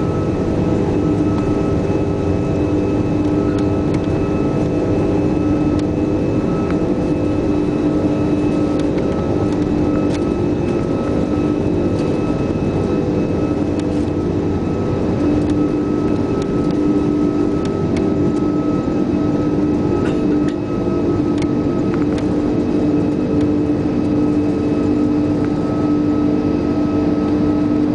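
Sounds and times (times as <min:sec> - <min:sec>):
jet engines roaring in cabin: 0:00.0 - 0:27.9.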